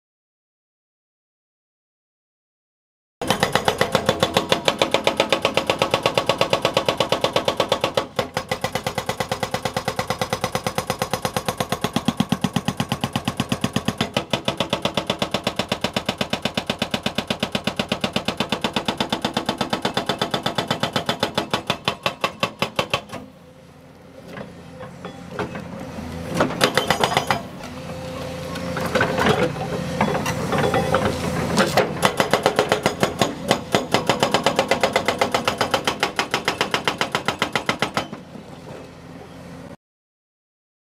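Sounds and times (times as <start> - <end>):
hydraulic breaker hammering concrete: 3.2 - 23.3, 26.3 - 27.6, 28.6 - 38.3
excavator engine running: 3.2 - 39.7.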